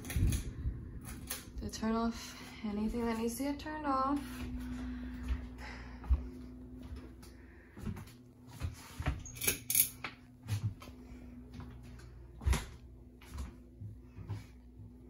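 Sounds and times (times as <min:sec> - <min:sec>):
faint hum: 0:00.0 - 0:15.0.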